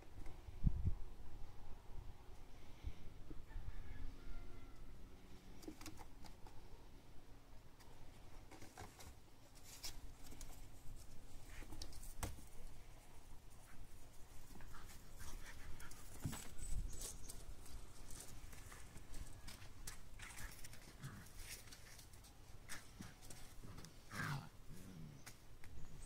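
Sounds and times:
puppies scampering and scuffling: 5.6s - 6.7s, 7.8s - 26.0s.

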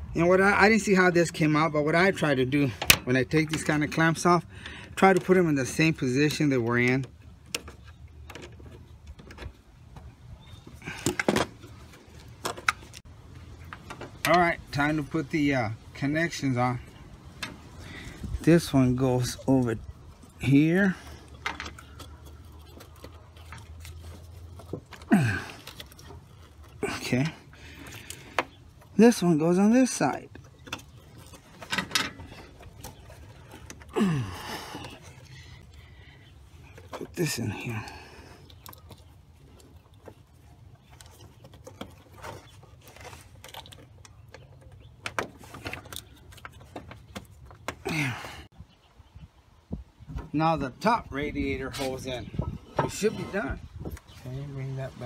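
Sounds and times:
person grunting: 25.1s - 25.6s, 33.9s - 34.9s, 47.8s - 48.4s.

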